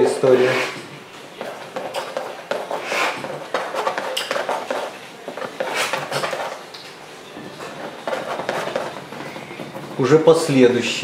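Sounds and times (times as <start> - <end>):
palette knife scraping paint: 1.4 - 6.7, 7.5 - 9.7.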